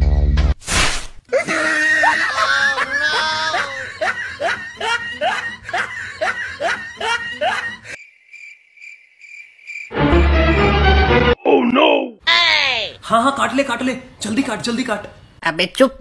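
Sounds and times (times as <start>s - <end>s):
hearty human laughter: 1.3s - 8.0s.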